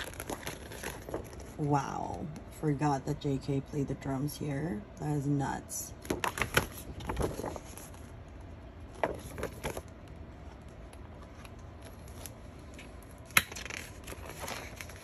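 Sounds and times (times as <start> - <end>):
paper pages rustling: 0.0 - 1.6, 6.1 - 8.2, 8.9 - 15.0.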